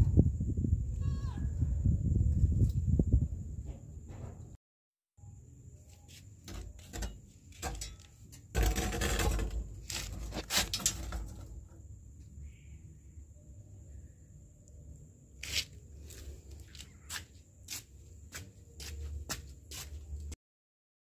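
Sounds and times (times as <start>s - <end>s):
knocks and scrapes on concrete: 6.0s - 11.8s.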